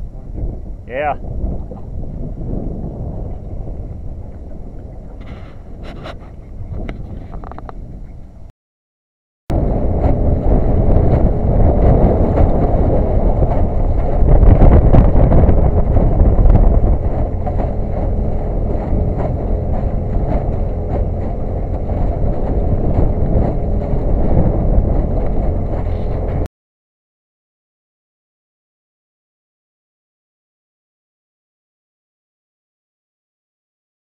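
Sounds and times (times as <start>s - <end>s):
boat on choppy water: 0.0s - 8.5s, 9.5s - 26.5s
faint boat motor hum: 0.0s - 8.5s, 9.5s - 26.5s
wind buffeting microphone: 0.0s - 8.5s, 9.5s - 26.5s.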